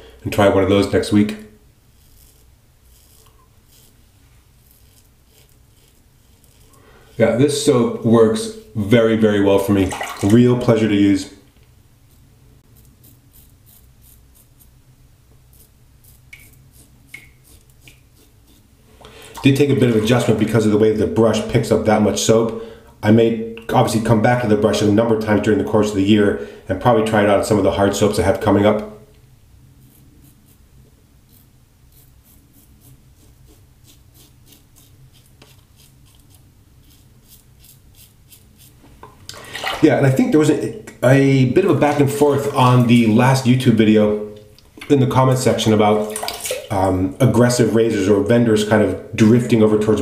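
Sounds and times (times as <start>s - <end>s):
razor scraping stubble: 1.9s - 6.8s, 12.7s - 14.7s, 15.5s - 18.7s, 31.3s - 38.8s.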